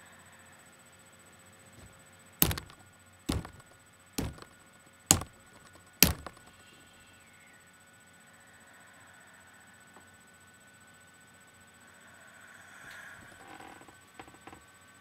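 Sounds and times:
loud knocks on hard surface: 0:02.4 - 0:06.5.

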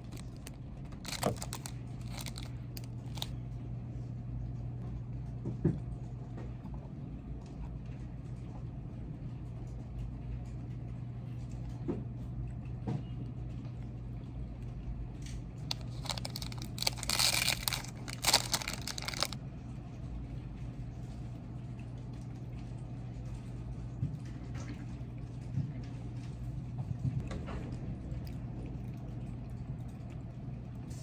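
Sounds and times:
packaging crinkling and rustling: 0:00.0 - 0:03.4, 0:15.7 - 0:19.4
steady low hum: 0:00.0 - 0:31.0.

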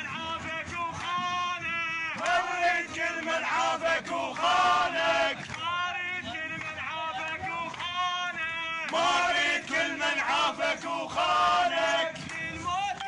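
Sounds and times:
men chanting together: 0:02.1 - 0:06.6, 0:07.2 - 0:12.4.

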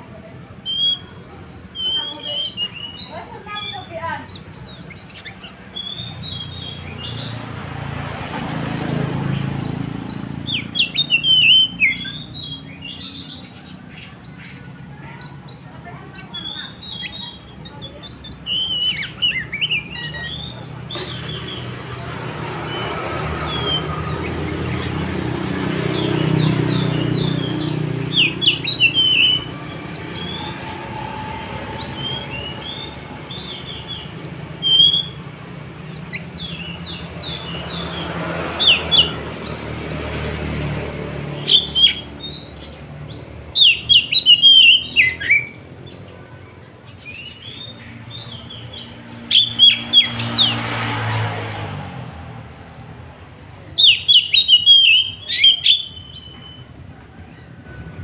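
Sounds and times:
bird singing whistled phrases: 0:00.6 - 0:07.4, 0:09.8 - 0:13.6, 0:16.2 - 0:21.6, 0:22.7 - 0:35.3, 0:35.9 - 0:39.1, 0:41.4 - 0:42.5, 0:43.5 - 0:45.7, 0:49.3 - 0:50.6, 0:53.8 - 0:56.6.

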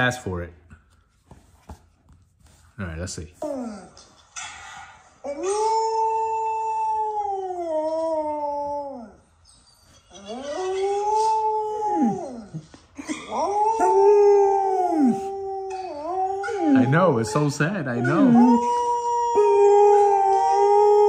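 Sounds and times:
dog howling: 0:05.3 - 0:09.2, 0:10.1 - 0:12.6, 0:13.3 - 0:21.0.

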